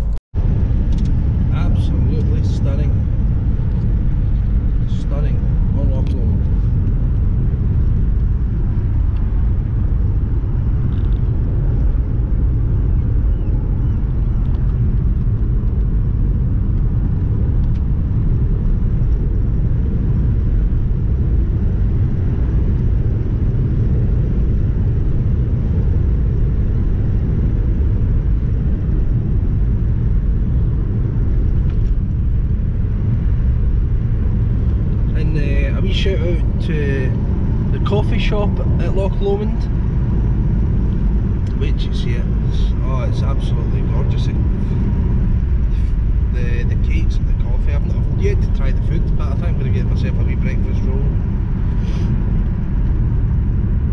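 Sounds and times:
car driving heard from inside: 0:00.0 - 0:53.9.

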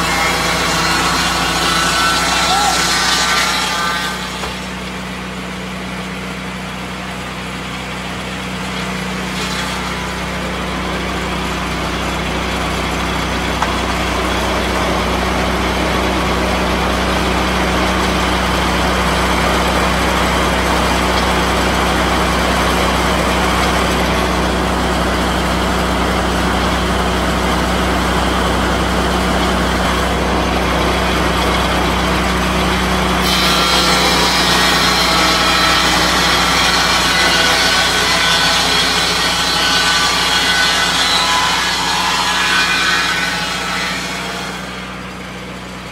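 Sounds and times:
circular blade sawing log: 0:00.0 - 0:45.9
sawmill engine running: 0:00.0 - 0:45.9.

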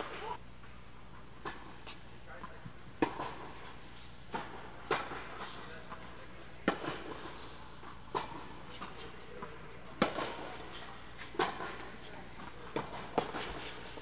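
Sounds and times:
tennis ball bouncing on court: 0:03.0 - 0:03.5, 0:04.3 - 0:07.3, 0:08.1 - 0:13.7
tennis ball struck by rackets: 0:03.0 - 0:03.5, 0:06.6 - 0:07.3, 0:08.1 - 0:10.5, 0:11.3 - 0:11.8.

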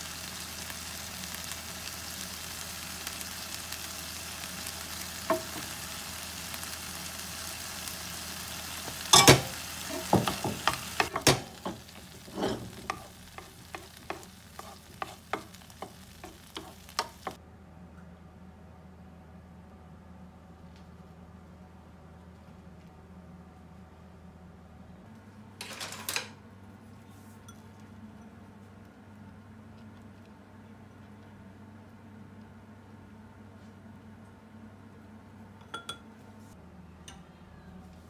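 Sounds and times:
onions sizzling in a frying pan: 0:00.0 - 0:17.4
wooden spatula scraping a pan: 0:09.8 - 0:17.4.

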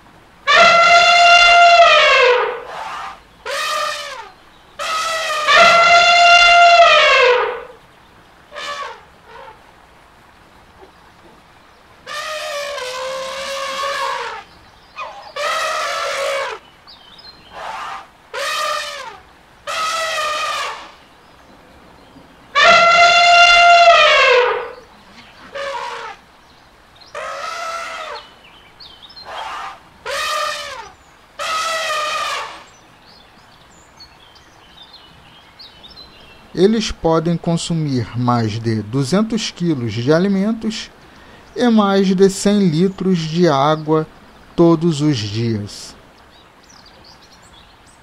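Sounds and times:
elephants trumpeting: 0:00.5 - 0:07.8, 0:08.5 - 0:09.6, 0:12.0 - 0:16.6, 0:17.5 - 0:21.0, 0:22.5 - 0:26.2, 0:27.1 - 0:28.3, 0:29.2 - 0:32.7.

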